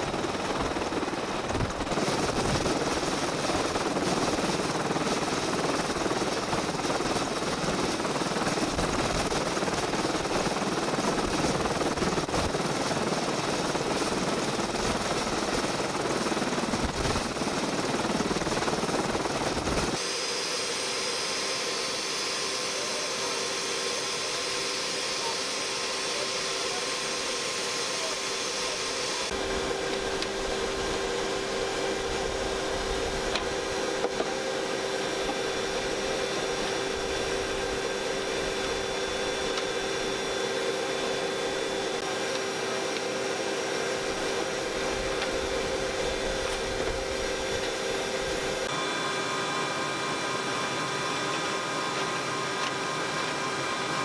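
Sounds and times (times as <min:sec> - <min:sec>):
turbine engine noise: 0:00.0 - 0:54.0.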